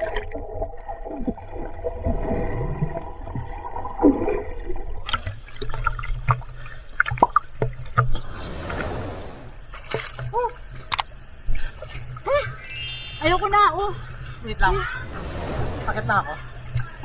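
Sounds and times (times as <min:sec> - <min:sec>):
underwater gurgling and bubbling: 0:00.0 - 0:06.3
water splashing: 0:07.8 - 0:10.2, 0:14.8 - 0:16.5.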